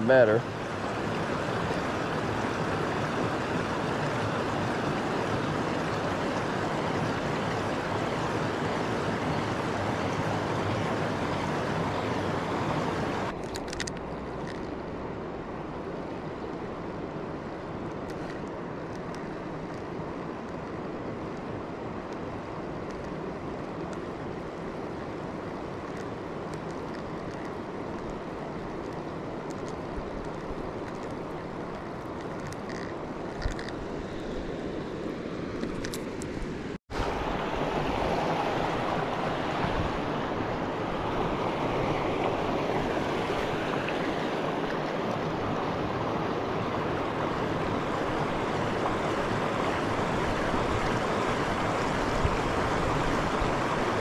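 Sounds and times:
river rapids rushing: 0.0 - 13.4, 36.6 - 54.0.

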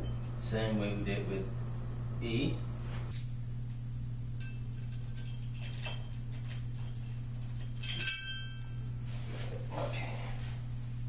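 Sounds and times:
steady low hum: 0.0 - 11.0
metal hardware clinking: 4.4 - 8.9.

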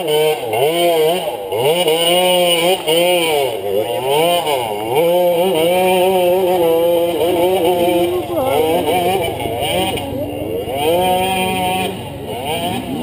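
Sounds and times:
dirt bike engine revving: 0.0 - 13.0.

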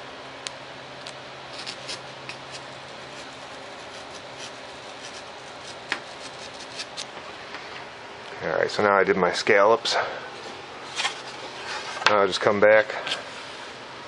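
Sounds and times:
knife scratching through paper: 1.5 - 7.0.

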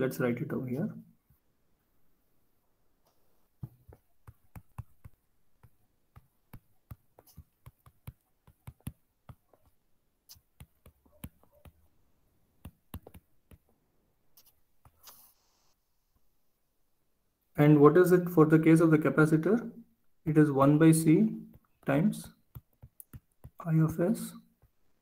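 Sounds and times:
stylus tapping on tablet screen: 3.1 - 11.9, 12.6 - 15.2, 21.4 - 24.9.

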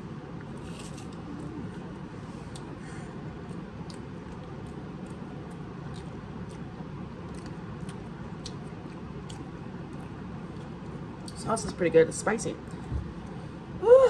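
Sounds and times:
low background rumble: 0.0 - 14.0
person chewing: 0.4 - 11.4.

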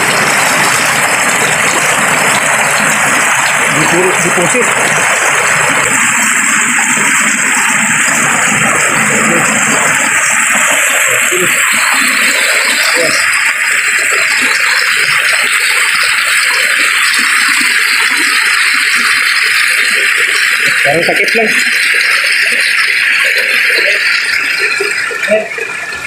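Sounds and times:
stream rushing over rocks: 0.0 - 26.0.

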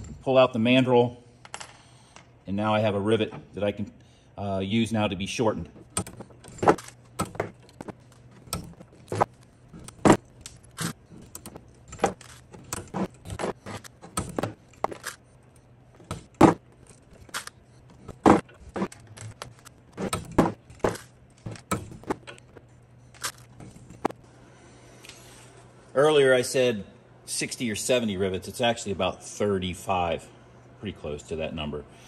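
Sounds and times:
pliers pulling rivet mandrels: 5.8 - 15.3.

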